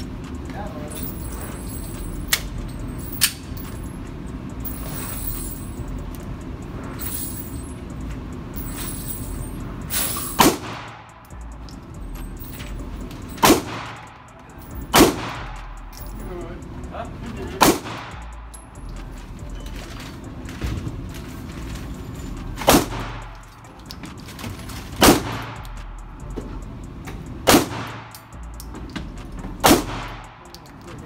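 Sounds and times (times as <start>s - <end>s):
steady low hum: 0.0s - 31.0s
pistol shots with echo: 13.4s - 14.1s, 14.9s - 15.6s, 17.6s - 18.2s, 25.0s - 25.6s, 27.5s - 28.2s, 29.6s - 30.4s
sharp clicks: 25.0s - 31.0s.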